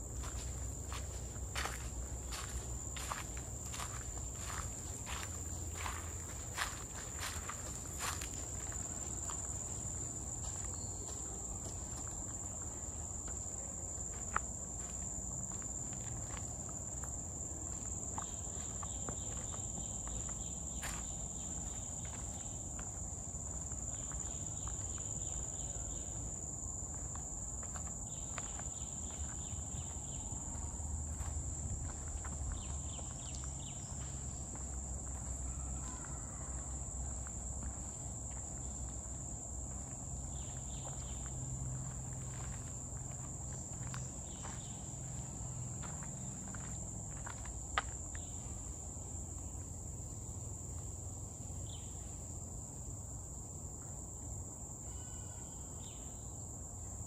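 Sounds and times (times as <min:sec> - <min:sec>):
footsteps on a trail: 0:00.0 - 0:48.5
pulsing insect call: 0:53.8 - 0:57.0
high-pitched insect drone: 0:54.8 - 0:56.3.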